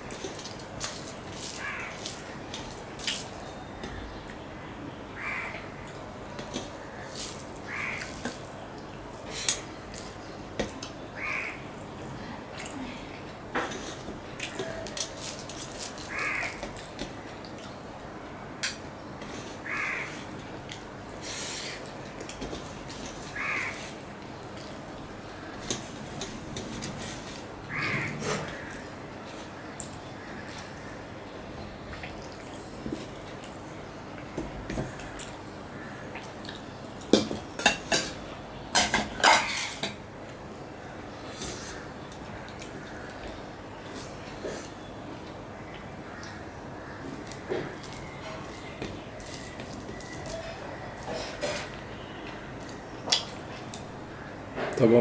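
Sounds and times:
fingers mixing rice on plate: 0:00.1 - 0:03.5
crow cawing: 0:01.5 - 0:02.2, 0:05.2 - 0:05.6, 0:06.8 - 0:08.2, 0:11.2 - 0:11.6, 0:16.0 - 0:16.6, 0:19.6 - 0:20.2, 0:23.3 - 0:23.9, 0:27.7 - 0:28.9.

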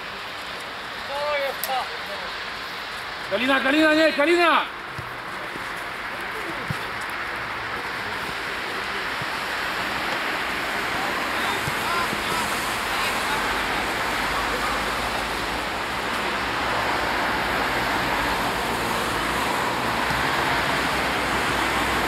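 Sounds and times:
rushing outdoor background noise: 0:00.0 - 0:22.0
distant voices: 0:04.6 - 0:22.0.

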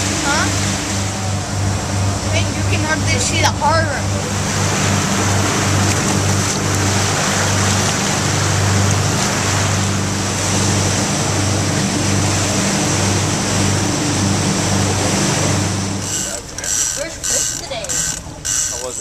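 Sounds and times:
boat engine drone: 0:00.0 - 0:19.0
water rushing along hull: 0:00.0 - 0:19.0.

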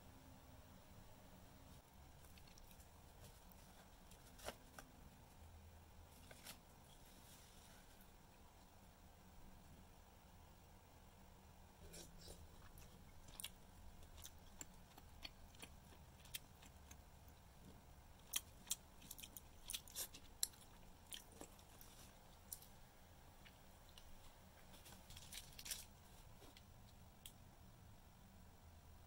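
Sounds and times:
chewing: 0:02.1 - 0:04.5, 0:11.8 - 0:22.8
plastic packet crinkling: 0:24.7 - 0:26.2.

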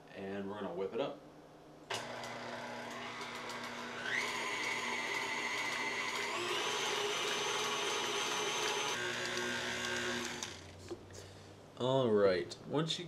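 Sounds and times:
stand mixer motor whine: 0:01.9 - 0:10.7.

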